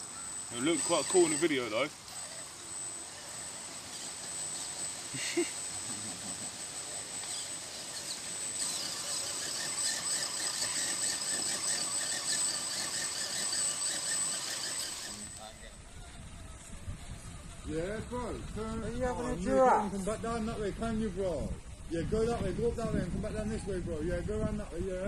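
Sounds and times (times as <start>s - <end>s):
electric motor whining: 0.0s - 15.6s.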